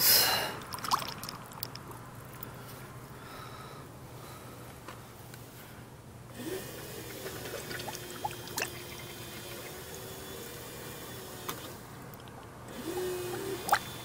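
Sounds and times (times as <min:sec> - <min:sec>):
faint steady hum: 0:00.0 - 0:14.0
coolant gurgling in funnel: 0:00.6 - 0:02.4, 0:06.4 - 0:11.3, 0:12.2 - 0:14.0
sharp drips: 0:00.6 - 0:02.6, 0:07.1 - 0:09.8, 0:12.1 - 0:14.0.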